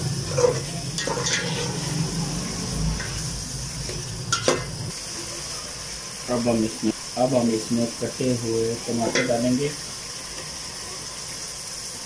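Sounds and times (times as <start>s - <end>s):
light sizzle of frying: 0.0s - 12.0s
metal spoon scraping a pot: 0.2s - 2.0s.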